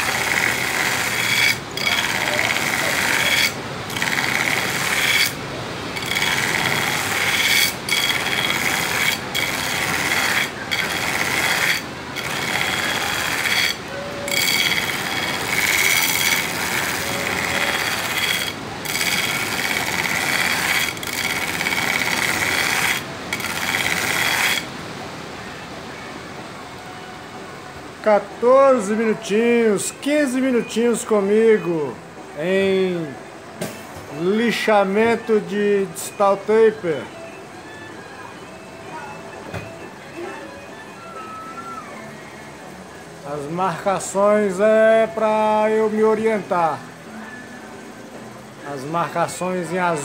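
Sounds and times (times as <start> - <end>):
belt grinder running: 0.0 - 5.4, 6.0 - 24.7
knife blade on belt grinder: 0.0 - 5.4, 6.0 - 24.7.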